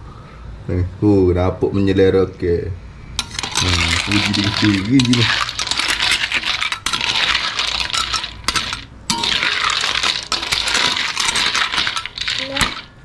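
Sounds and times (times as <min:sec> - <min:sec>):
metal spoon stirring in a wok: 0:03.2 - 0:13.0
snail shells clinking: 0:03.2 - 0:13.0.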